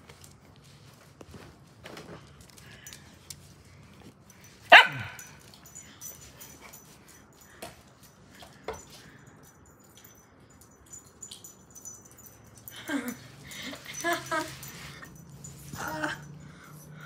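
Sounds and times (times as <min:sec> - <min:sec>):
dog barking: 0:04.7 - 0:05.4.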